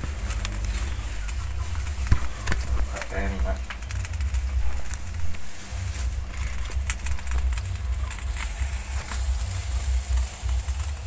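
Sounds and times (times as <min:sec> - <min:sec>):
gas burner rumble and hiss: 0:00.0 - 0:11.0.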